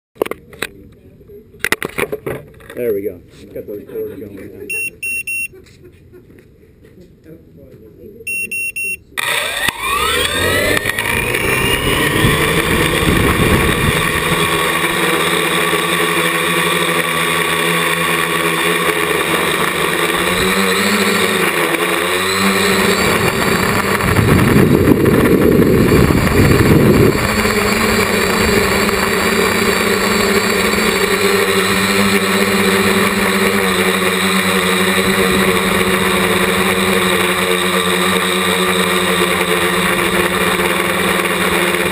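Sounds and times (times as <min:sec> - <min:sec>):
quadcopter motors buzzing: 0:04.3 - 0:05.5, 0:08.3 - 0:41.9
short electronic beep: 0:04.7 - 0:05.5, 0:08.3 - 0:09.1.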